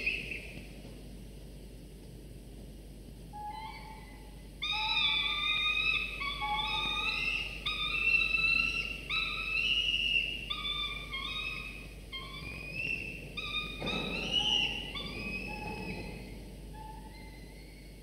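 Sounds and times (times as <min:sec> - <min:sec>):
falcon chicks whistling calls: 0:00.0 - 0:00.6, 0:03.4 - 0:18.0.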